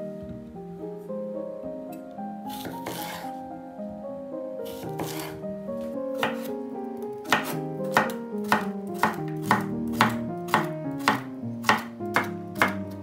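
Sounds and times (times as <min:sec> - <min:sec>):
background music: 0:00.0 - 0:13.0
knife chopping on cutting board: 0:02.5 - 0:03.2, 0:04.7 - 0:05.4, 0:06.2 - 0:06.5, 0:07.2 - 0:12.9.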